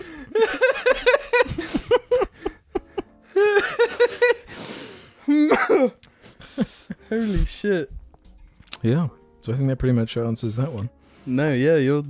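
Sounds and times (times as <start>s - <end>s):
men laughing hard: 0.0s - 7.4s.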